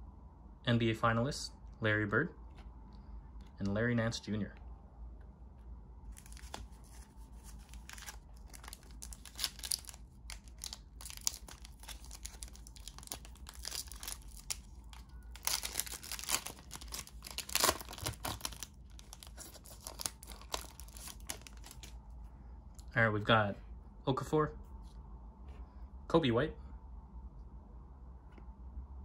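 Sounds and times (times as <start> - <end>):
foil wrapper crinkling and tearing: 6.1 - 22.0.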